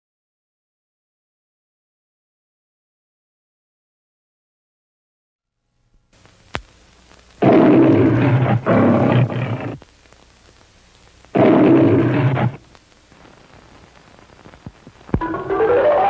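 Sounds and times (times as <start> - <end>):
lion roaring: 7.4 - 9.8, 11.4 - 12.6.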